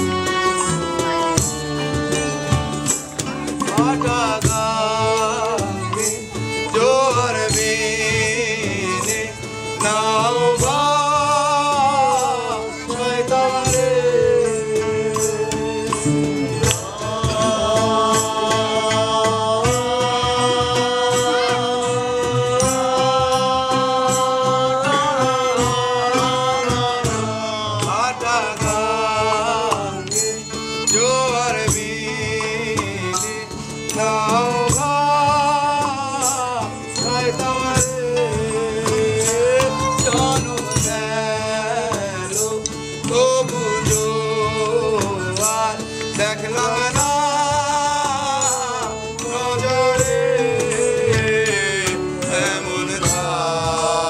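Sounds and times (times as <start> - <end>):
light percussion beat: 0.0 - 54.0
men singing: 0.0 - 54.0
oud: 0.0 - 54.0
violin: 0.0 - 54.0
melodica: 16.0 - 32.5, 33.1 - 54.0.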